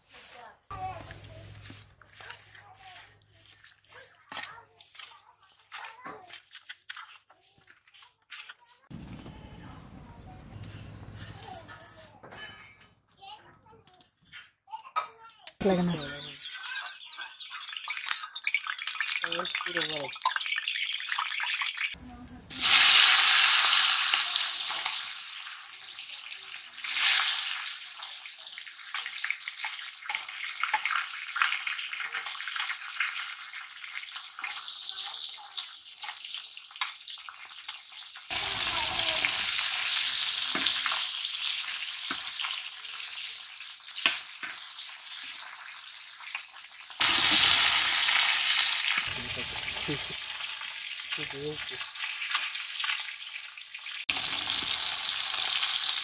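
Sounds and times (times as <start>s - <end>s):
metal spatula scraping wok: 0.0s - 8.9s, 10.6s - 13.0s
fish sizzling in hot oil: 15.6s - 56.0s.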